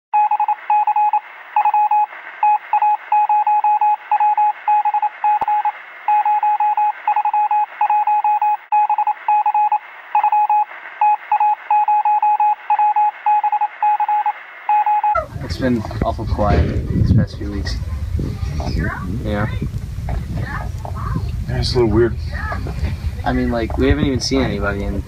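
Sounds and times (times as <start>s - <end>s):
morse code radio beeping: 0.2s - 15.3s
steady radio hiss: 1.2s - 3.2s, 3.9s - 6.2s, 9.1s - 11.7s, 14.3s - 25.0s.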